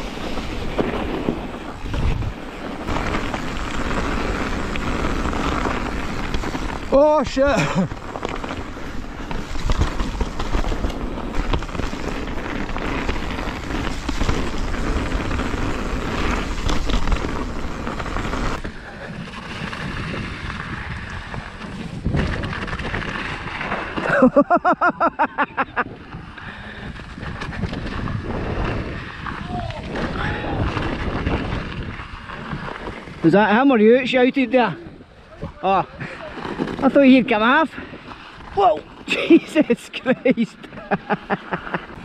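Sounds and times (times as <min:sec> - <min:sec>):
wind buffeting microphone: 0:00.0 - 0:24.5, 0:25.5 - 0:33.4
bike tyre noise and rattle: 0:00.0 - 0:42.0.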